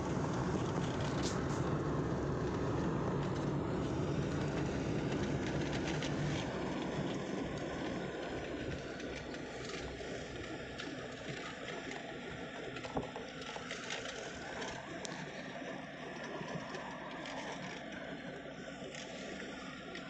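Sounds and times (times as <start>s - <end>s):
road and wind noise inside vehicle: 0.0s - 15.7s.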